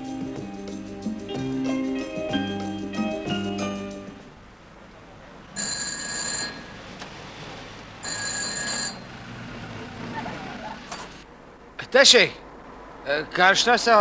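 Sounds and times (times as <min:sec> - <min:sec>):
telephone ringing: 0:05.6 - 0:06.8, 0:08.0 - 0:09.2.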